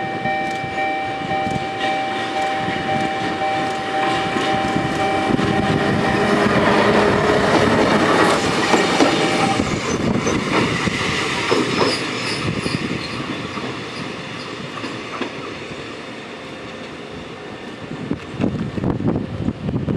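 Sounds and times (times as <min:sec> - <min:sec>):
railcar wheels clattering: 0:00.0 - 0:19.0.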